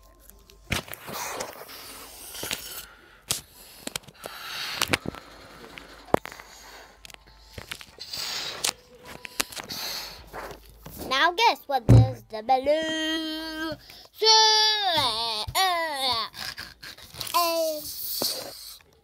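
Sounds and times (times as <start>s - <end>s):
child blowing up balloon: 8.0s - 8.7s, 16.0s - 18.8s.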